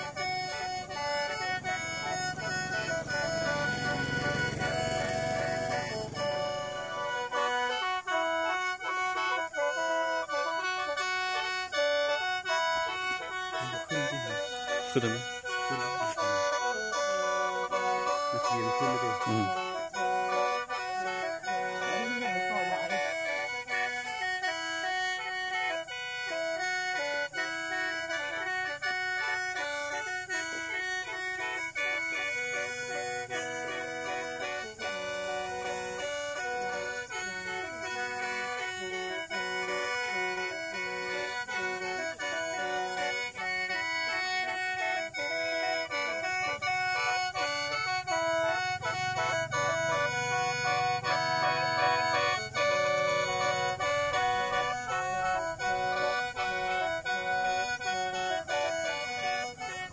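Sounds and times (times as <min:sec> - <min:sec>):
mouth organ chord: 0:00.0 - 0:25.3, 0:29.2 - 0:59.9.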